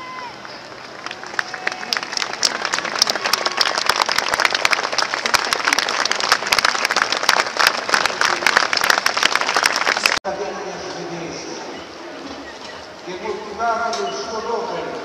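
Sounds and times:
large crowd applauding: 0:00.0 - 0:10.2.

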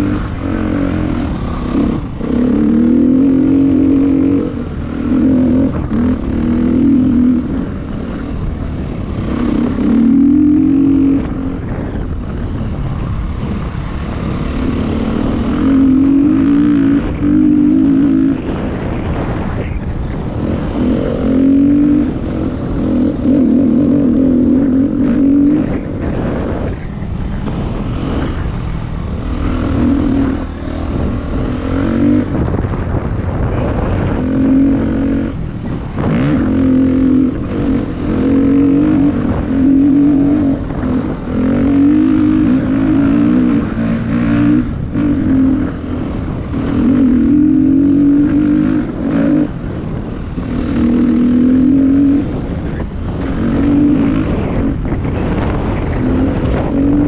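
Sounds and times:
dirt bike engine surging: 0:00.0 - 0:57.0
wind rushing: 0:00.0 - 0:57.0.

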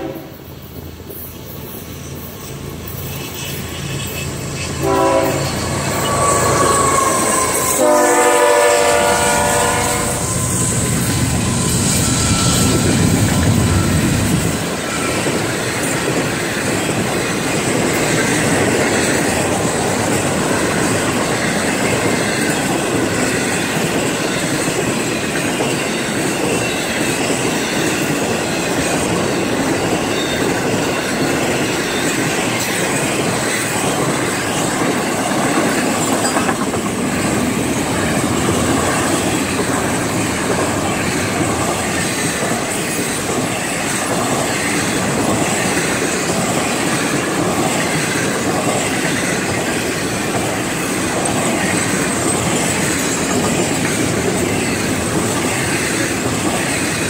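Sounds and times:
train horn blast: 0:00.0 - 0:00.4, 0:03.4 - 0:10.6
diesel locomotive rumble: 0:01.8 - 0:23.8
wheels clicking over rail joints: 0:12.6 - 0:57.0.

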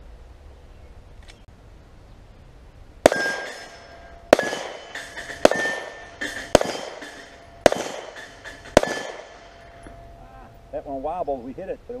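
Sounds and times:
pistol shots: 0:03.0 - 0:09.9
metallic ring of steel targets: 0:03.1 - 0:11.0.

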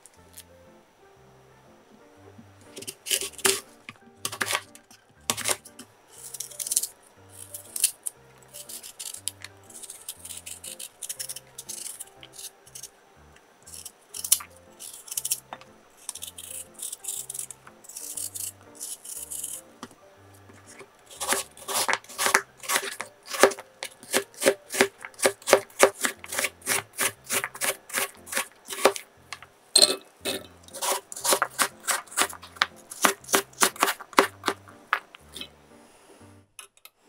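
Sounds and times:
quiet background music: 0:00.0 - 0:37.0
knife scraping through peel: 0:02.7 - 0:03.7, 0:04.3 - 0:04.7, 0:05.3 - 0:12.9, 0:13.6 - 0:15.4, 0:16.0 - 0:19.7, 0:20.6 - 0:29.0, 0:30.3 - 0:34.6
knife chopping on cutting board: 0:04.3 - 0:04.7, 0:05.3 - 0:05.7, 0:20.5 - 0:29.0, 0:30.7 - 0:35.0.

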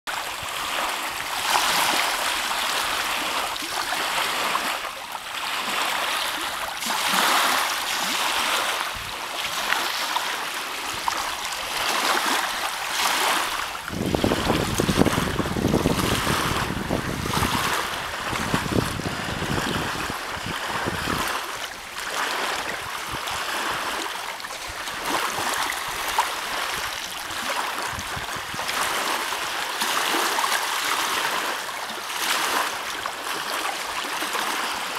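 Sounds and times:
waves lapping at shore: 0:00.1 - 0:34.9
wind buffeting microphone: 0:10.8 - 0:29.2.

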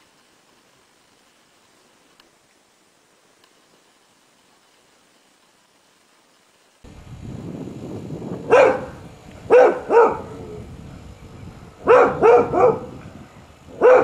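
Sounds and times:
dog barking: 0:08.5 - 0:10.5, 0:11.8 - 0:13.0, 0:13.7 - 0:14.0.

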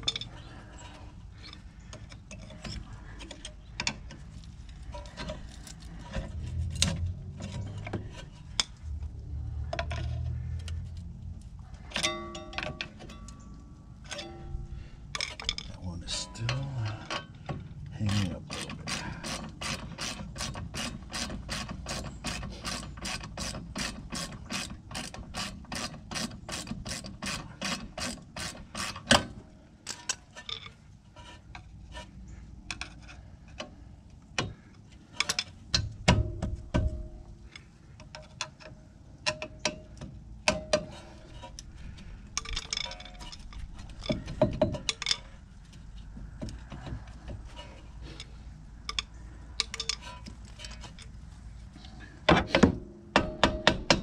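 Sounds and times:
metal clinks and knocks: 0:00.0 - 0:00.5, 0:11.8 - 0:25.9, 0:29.8 - 0:30.8, 0:42.3 - 0:51.3.

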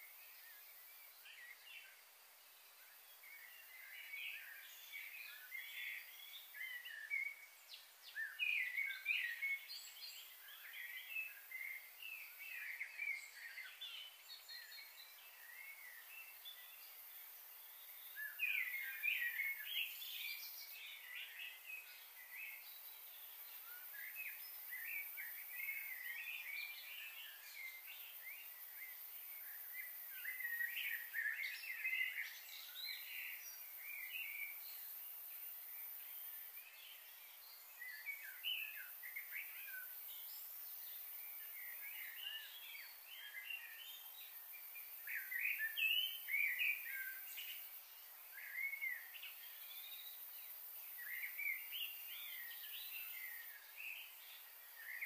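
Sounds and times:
faint high hiss: 0:00.0 - 0:55.0
birds chirping: 0:03.2 - 0:55.0.

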